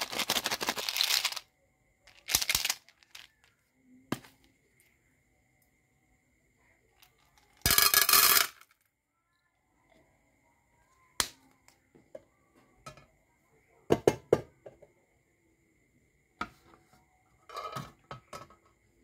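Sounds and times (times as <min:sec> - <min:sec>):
candies rattling into metal tin: 0:00.0 - 0:01.4, 0:02.1 - 0:03.5.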